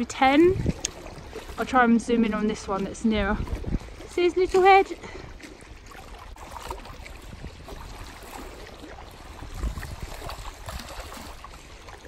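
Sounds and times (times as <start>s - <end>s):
sea lapping at shoreline: 0.0s - 12.0s
wind rumble on microphone: 0.0s - 12.0s.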